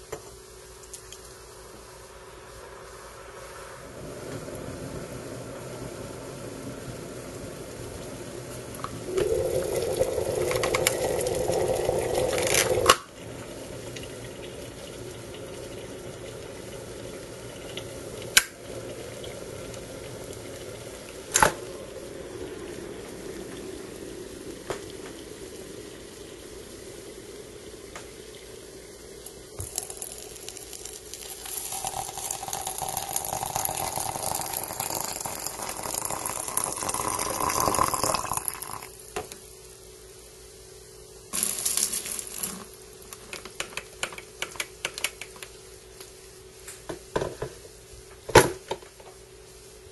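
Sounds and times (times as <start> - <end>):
electric kettle boiling: 0.0 - 49.9
water pouring into teapot: 8.8 - 39.0, 41.3 - 43.1.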